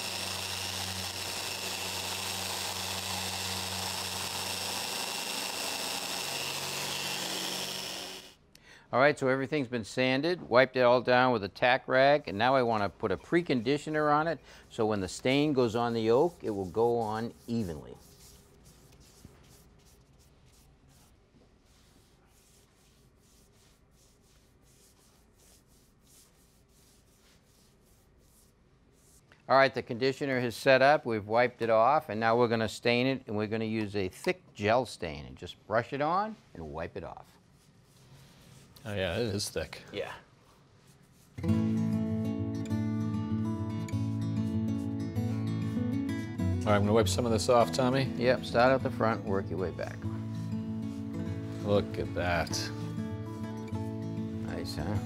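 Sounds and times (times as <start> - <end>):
orbital sander running: 0.0 - 8.4
gloved hand wiping wood: 13.2 - 29.4, 36.6 - 39.4, 40.4 - 41.4, 48.6 - 55.0.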